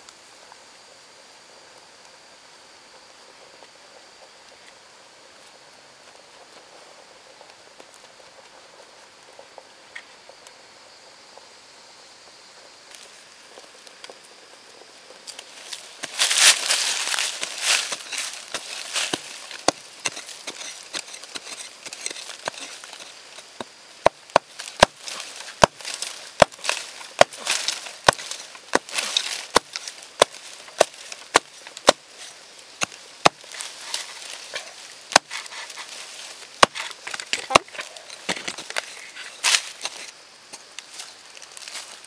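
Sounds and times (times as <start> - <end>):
soil scraping and crumbling: 15.2 - 42.0
tool striking ground: 15.3 - 42.0.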